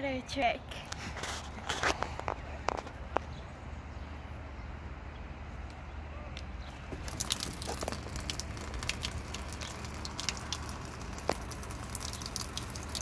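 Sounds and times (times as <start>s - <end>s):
water splashing from balloon: 6.8s - 13.0s.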